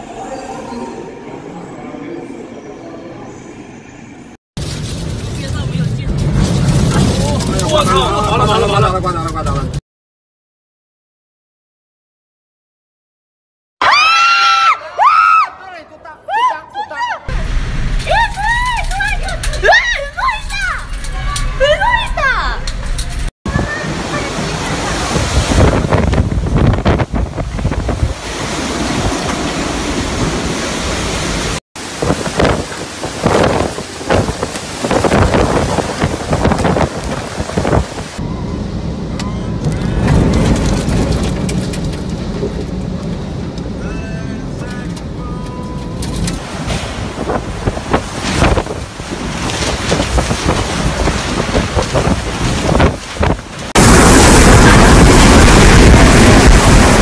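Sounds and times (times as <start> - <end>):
strong wind buffeting microphone: 23.2 - 43.8, 46.1 - 57.0.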